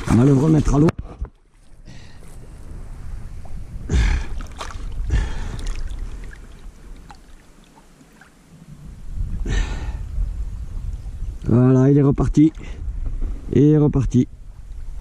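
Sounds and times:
water lapping: 0.0s - 0.8s, 1.4s - 8.8s
water sloshing and splashing: 0.0s - 8.6s.

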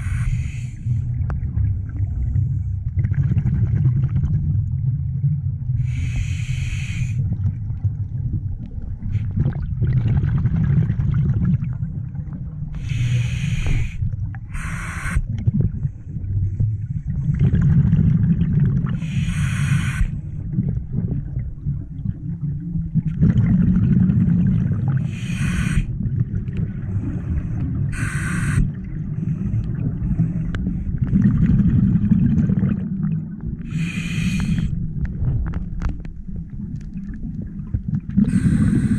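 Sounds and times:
regulator breathing bubbles: 0.0s - 1.0s, 12.8s - 15.9s, 17.2s - 20.2s, 23.2s - 26.1s, 26.7s - 32.8s, 33.6s - 34.8s, 38.1s - 38.9s
low underwater rumble: 0.0s - 6.3s, 7.1s - 38.9s.

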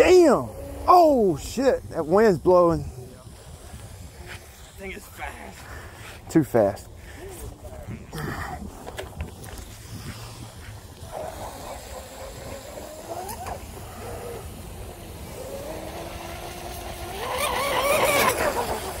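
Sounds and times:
wind rumble on microphone: 0.0s - 16.7s
rc boat motor whining: 0.0s - 19.0s.

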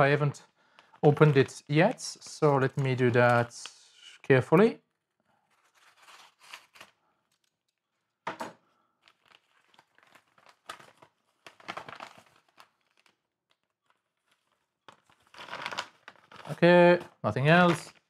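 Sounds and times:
padded envelope crinkling and tearing: 1.0s - 3.8s, 5.4s - 7.8s, 9.0s - 18.0s
paper rustling: 5.4s - 7.5s, 9.0s - 18.0s.

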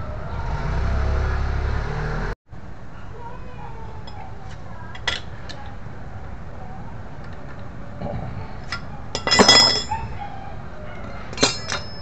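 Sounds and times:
metal tools clinking: 4.9s - 5.7s, 8.6s - 10.2s, 11.0s - 12.0s
ringing metallic clatter: 8.6s - 10.2s, 11.0s - 12.0s.

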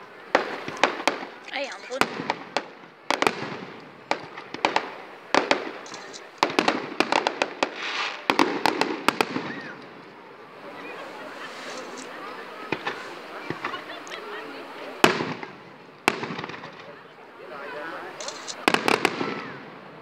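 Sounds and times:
firework shells bursting: 0.3s - 10.0s, 15.0s - 17.0s, 18.2s - 19.6s.

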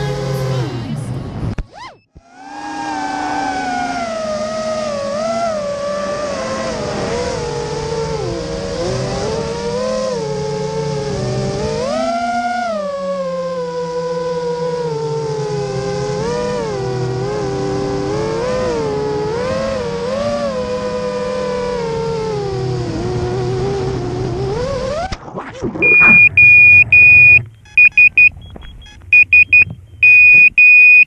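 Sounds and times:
drone motors whining: 1.6s - 31.0s
high-pitched beeper: 25.8s - 31.0s.

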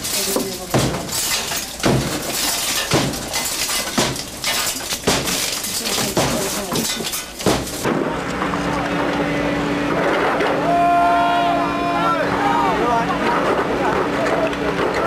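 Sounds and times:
glass breaking: 0.0s - 7.9s.

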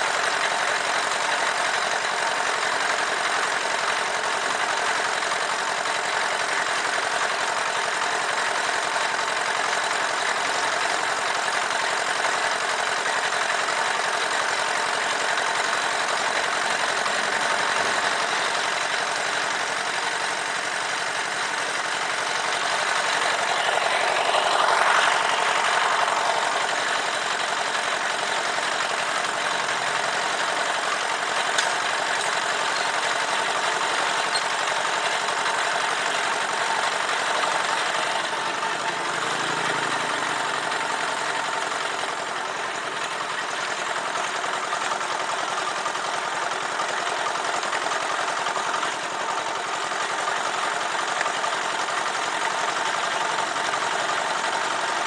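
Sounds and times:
concrete mixer engine running: 0.0s - 55.0s
passing sound: 22.2s - 28.2s.

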